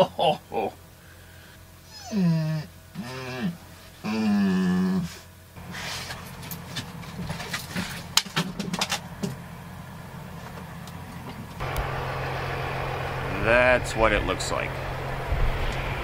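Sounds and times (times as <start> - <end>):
low engine hum: 2.7 - 16.0.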